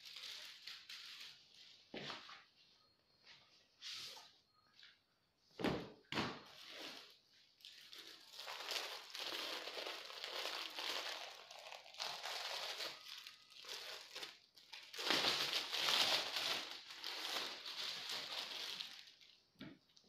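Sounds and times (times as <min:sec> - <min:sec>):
plastic wrapper crinkling: 0:00.0 - 0:01.6, 0:06.6 - 0:20.0.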